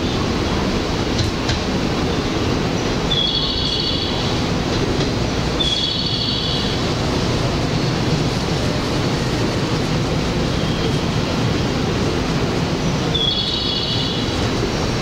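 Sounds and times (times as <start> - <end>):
electric train rumbling: 0.0 - 15.0
high-pitched train squeals: 3.1 - 4.4, 5.6 - 6.9, 13.1 - 14.5.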